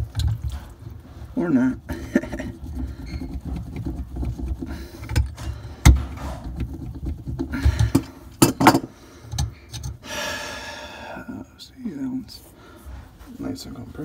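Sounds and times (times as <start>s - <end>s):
metal valve scraping on pipe: 1.4s - 10.0s.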